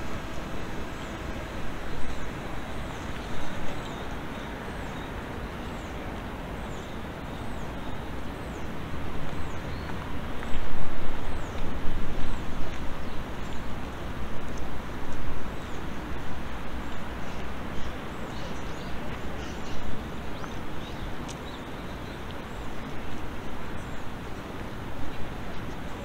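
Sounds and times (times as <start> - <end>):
low wind rumble: 0.0 - 26.0
small birds chirping: 16.8 - 26.0.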